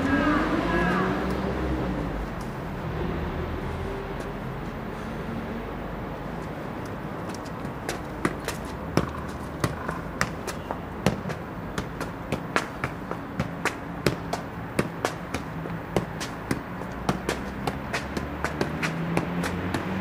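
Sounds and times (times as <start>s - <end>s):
ball kicked thumps: 7.4s - 19.9s.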